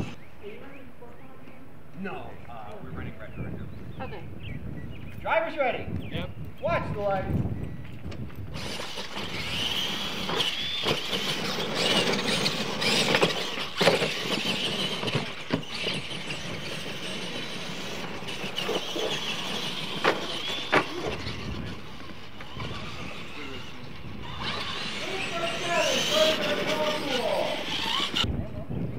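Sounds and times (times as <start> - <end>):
electric motor and gear whine: 0.0 - 0.3, 5.9 - 28.3.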